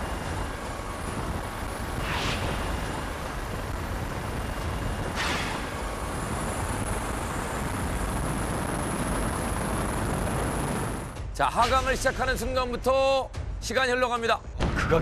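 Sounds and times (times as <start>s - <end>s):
helicopter hovering: 0.0s - 13.5s
brief whoosh: 2.0s - 2.8s.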